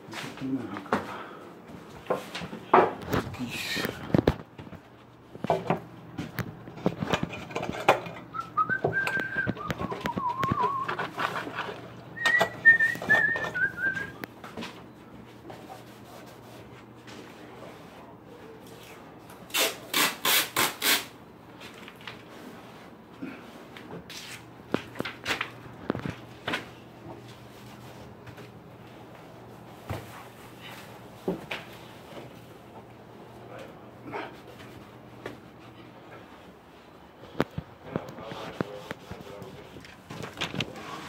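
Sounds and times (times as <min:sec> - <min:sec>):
knocks and rustles of handling: 0:00.0 - 0:15.8, 0:33.6 - 0:41.0
person whistling a tune: 0:08.3 - 0:11.0, 0:12.2 - 0:14.2.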